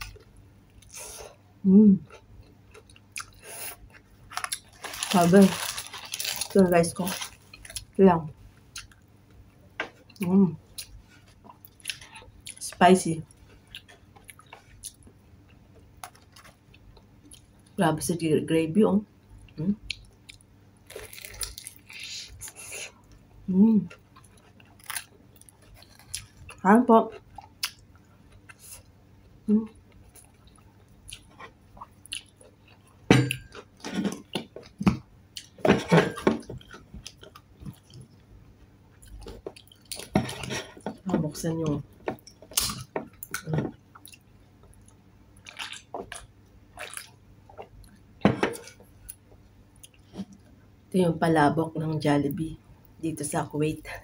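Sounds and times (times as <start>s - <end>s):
chewing crispy chicken: 2.0s - 8.0s, 19.4s - 23.2s, 23.8s - 28.9s, 29.7s - 33.5s, 38.9s - 40.6s, 42.2s - 48.0s.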